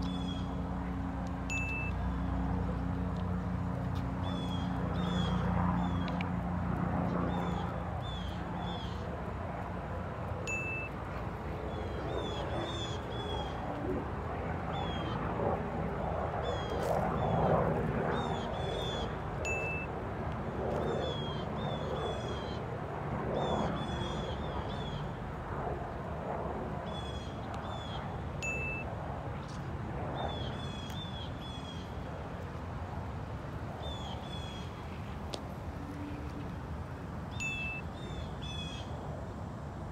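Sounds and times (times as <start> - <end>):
birds chirping: 0.0 - 0.7, 4.0 - 6.2.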